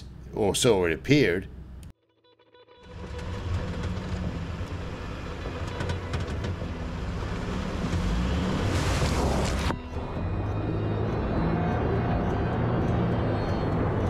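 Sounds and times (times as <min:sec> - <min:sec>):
truck engine humming: 0:02.9 - 0:14.0.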